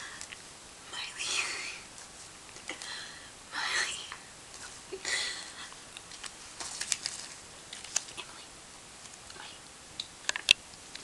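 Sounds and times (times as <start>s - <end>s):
paper crackling and rustling: 6.0s - 8.4s.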